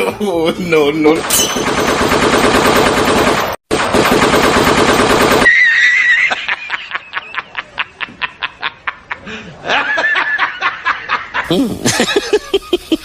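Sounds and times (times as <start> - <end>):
automatic gunfire: 1.2 - 5.5.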